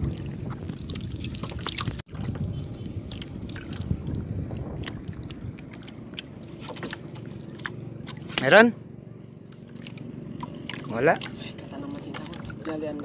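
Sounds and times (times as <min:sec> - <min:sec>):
wind buffeting microphone: 0:00.0 - 0:08.0
water lapping against boat: 0:00.0 - 0:13.0.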